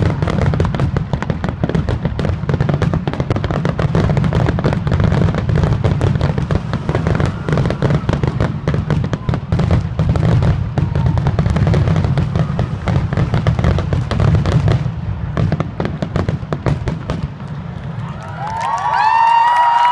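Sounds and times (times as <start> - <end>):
fireworks bursting and crackling: 0.0 - 19.9
heavy low rumble: 5.0 - 11.1.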